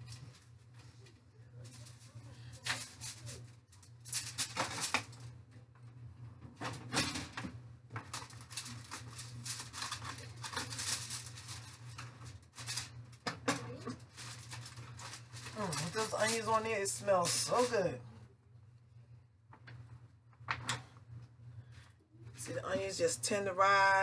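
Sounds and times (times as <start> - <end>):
aluminum foil pan crinkling and clattering: 1.6 - 5.2, 6.6 - 16.6.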